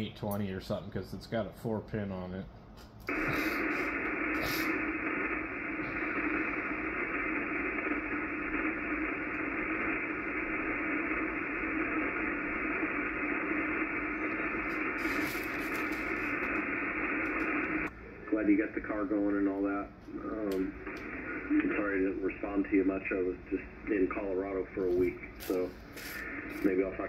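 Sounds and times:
radio static hiss: 0:03.1 - 0:27.0.

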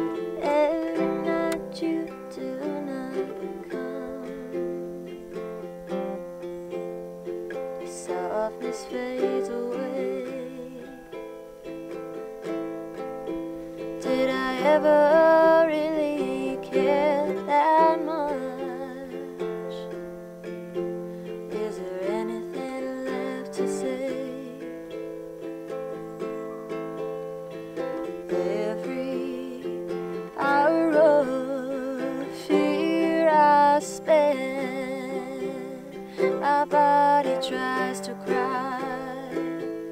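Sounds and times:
woman singing with vibrato: 0:00.0 - 0:05.1, 0:07.8 - 0:11.2, 0:13.8 - 0:20.0, 0:21.4 - 0:24.9, 0:28.0 - 0:39.9
acoustic guitar strumming: 0:00.0 - 0:39.9.

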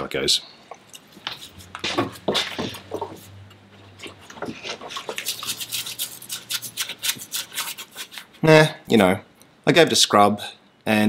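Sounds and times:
brush scrubbing metal: 0:01.3 - 0:08.4.

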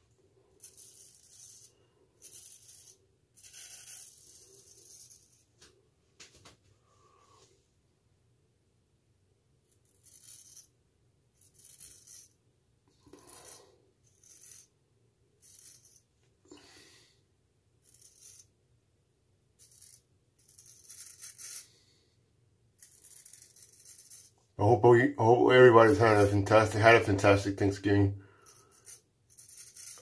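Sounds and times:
razor scraping stubble: 0:22.8 - 0:24.4, 0:25.6 - 0:27.8, 0:28.4 - 0:30.0.

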